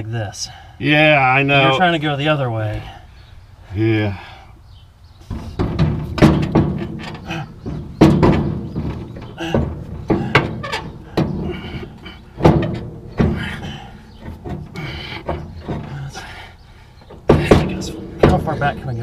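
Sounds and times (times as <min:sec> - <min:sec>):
metal knocks and clanks: 0:05.2 - 0:19.0.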